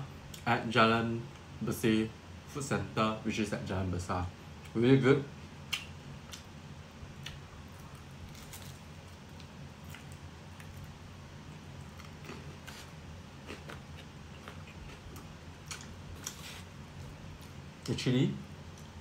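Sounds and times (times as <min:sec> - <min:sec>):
low steady hum: 0:00.0 - 0:19.0
person chewing: 0:07.2 - 0:10.9, 0:11.8 - 0:17.6.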